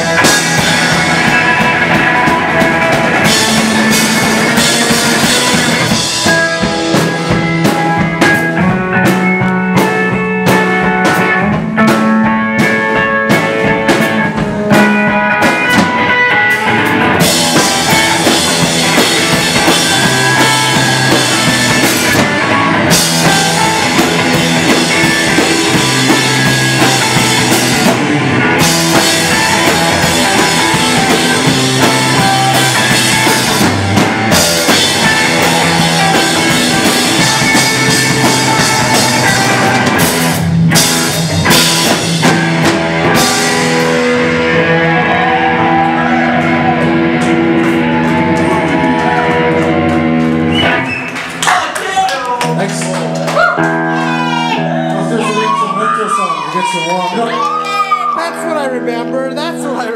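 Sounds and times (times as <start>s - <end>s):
drum kit: 0.0s - 55.7s
bass line: 0.0s - 56.6s
electric guitar: 0.0s - 59.9s.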